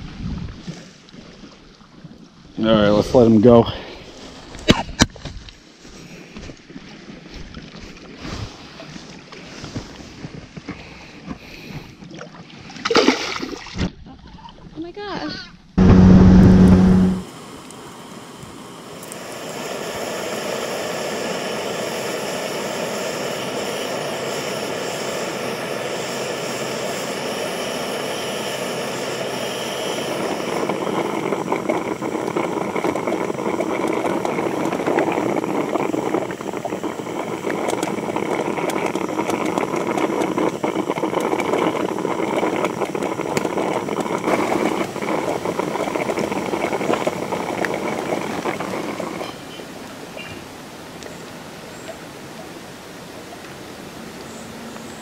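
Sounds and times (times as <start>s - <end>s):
motorboat engine running: 15.8s - 17.3s, 21.0s - 49.7s.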